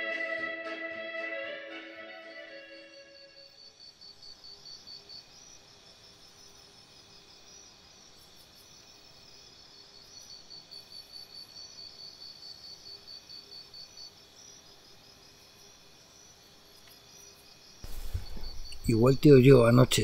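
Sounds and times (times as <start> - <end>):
crickets chirping: 2.3 - 20.0.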